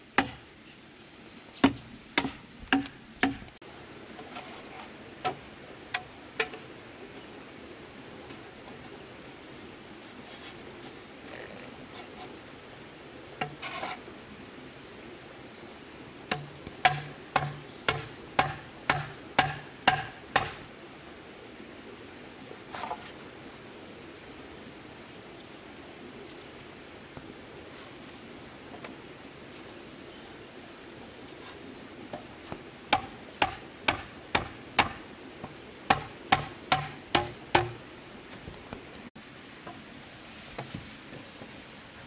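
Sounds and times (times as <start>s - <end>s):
insects chirping: 1.5s - 40.5s.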